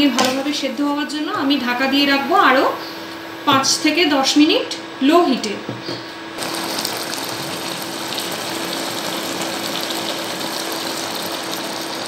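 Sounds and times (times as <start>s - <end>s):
curry bubbling in a pan: 6.4s - 12.0s.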